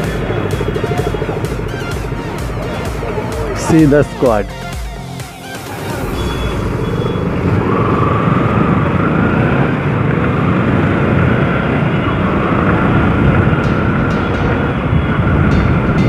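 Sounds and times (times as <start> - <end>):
motorcycle engine running: 0.0 - 5.2, 6.0 - 16.0
wind rush: 5.7 - 16.0
faint wavering tone: 6.0 - 9.0.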